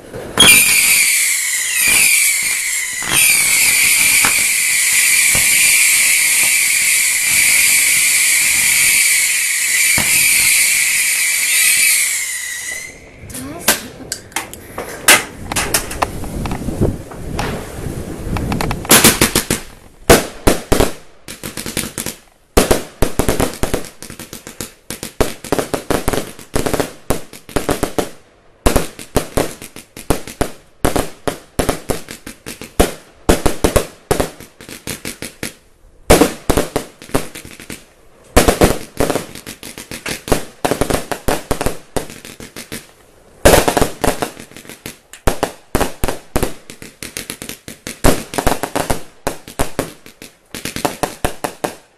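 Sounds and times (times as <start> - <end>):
firework bangs and crackles: 0.0 - 51.9.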